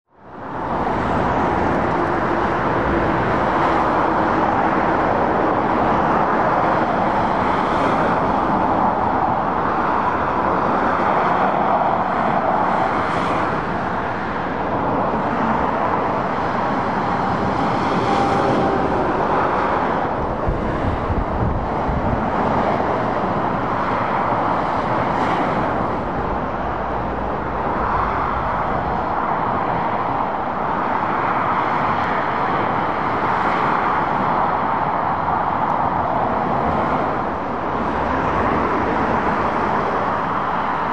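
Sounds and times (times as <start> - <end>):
traffic tyre roar: 0.1 - 40.9.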